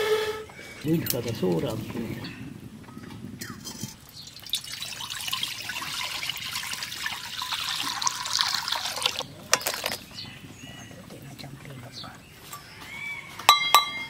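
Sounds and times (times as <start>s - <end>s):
water pouring into metal pan: 3.6s - 10.1s.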